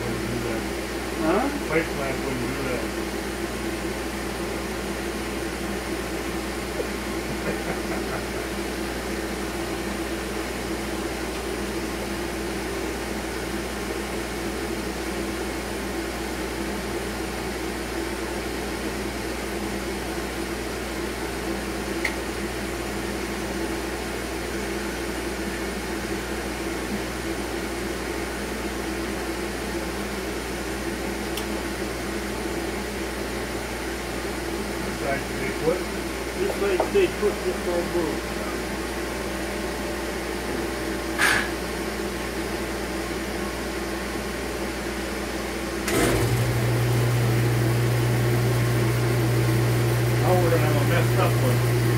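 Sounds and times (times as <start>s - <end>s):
dust collector air rush and hum: 0.0s - 51.9s.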